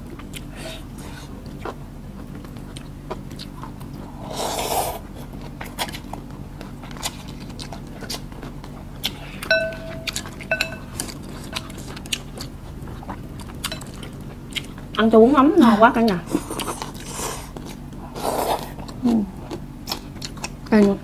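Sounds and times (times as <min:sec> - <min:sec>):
spoon striking bowl ringing: 0:09.5 - 0:11.0
utensils clinking on bowls: 0:09.5 - 0:11.7, 0:13.7 - 0:14.0.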